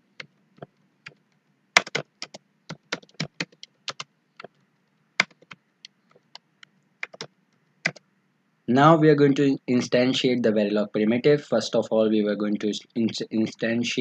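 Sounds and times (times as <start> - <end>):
computer keyboard typing: 0.1 - 4.6, 5.2 - 6.4, 7.0 - 8.0.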